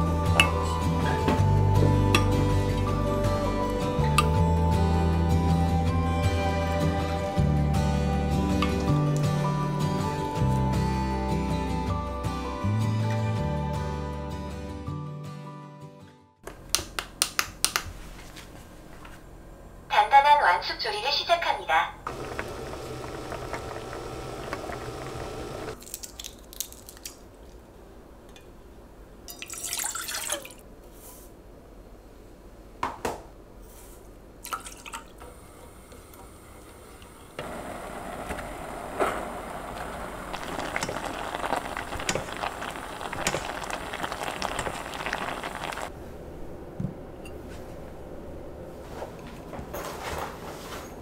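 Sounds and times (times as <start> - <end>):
liquid pouring: 22.1 - 25.8, 29.3 - 30.6, 34.4 - 35.1, 37.4 - 45.9
sauce bubbling in a saucepan: 22.1 - 25.8, 37.4 - 45.9
wooden spoon stirring boiling pot: 22.1 - 25.8, 37.5 - 45.9.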